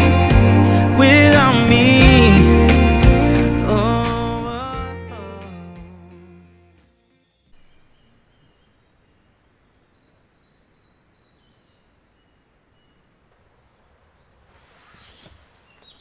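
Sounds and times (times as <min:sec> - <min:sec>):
small birds chirping: 0:07.5 - 0:16.0
tent zip opening: 0:13.8 - 0:16.0.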